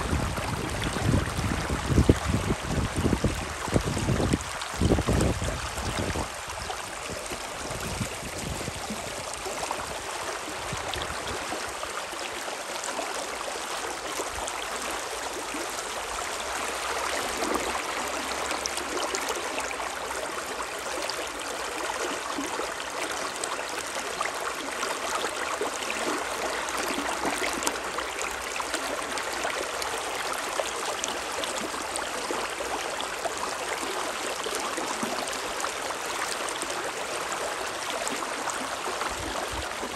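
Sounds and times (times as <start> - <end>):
wind rumbling on microphone: 0.0 - 11.6.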